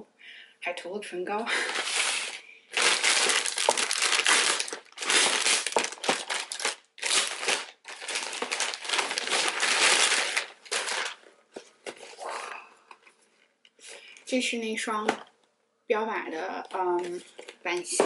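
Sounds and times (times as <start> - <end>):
plastic mailer bag crinkling: 1.6 - 11.3.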